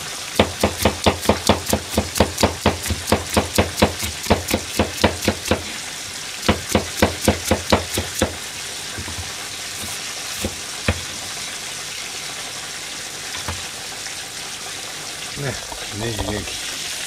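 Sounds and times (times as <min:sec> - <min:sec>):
frying sizzle: 0:00.0 - 0:17.0
knife chopping on plastic board: 0:00.4 - 0:05.7, 0:06.5 - 0:08.4, 0:09.0 - 0:11.1.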